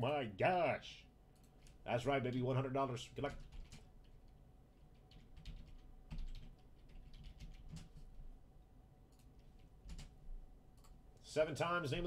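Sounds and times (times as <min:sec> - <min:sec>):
typing on a keyboard: 0:03.3 - 0:04.2, 0:04.9 - 0:08.1, 0:09.1 - 0:10.2.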